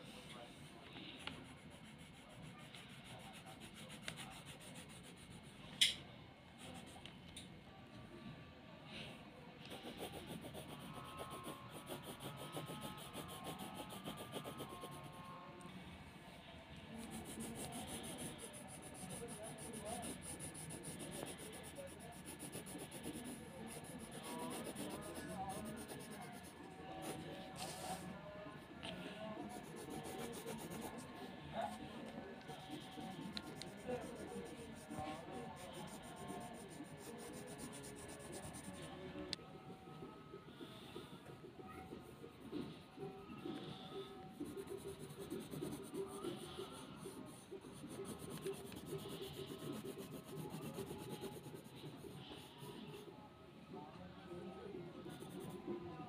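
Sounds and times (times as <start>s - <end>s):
pencil scratching on paper: 1.0s - 5.7s, 6.6s - 7.0s, 9.6s - 15.3s, 16.9s - 28.0s, 29.4s - 38.9s, 43.4s - 53.0s, 55.0s - 55.7s.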